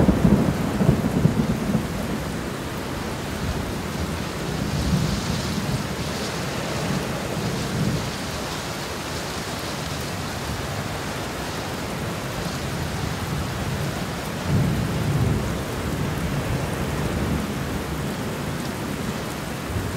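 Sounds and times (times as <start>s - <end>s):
rolling thunder: 0.0s - 6.0s
steady rain falling: 0.0s - 19.9s.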